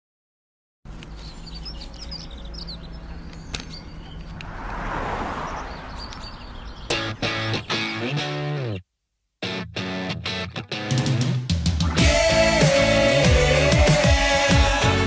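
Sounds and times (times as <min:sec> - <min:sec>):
birds chirping: 0:00.9 - 0:08.8
car passing: 0:01.7 - 0:07.9
electric guitar chords: 0:06.9 - 0:08.8, 0:09.4 - 0:15.0.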